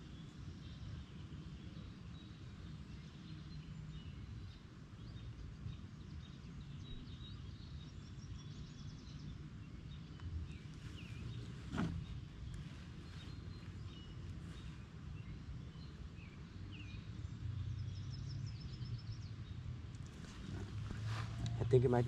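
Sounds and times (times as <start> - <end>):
low background rumble: 8.3 - 22.0.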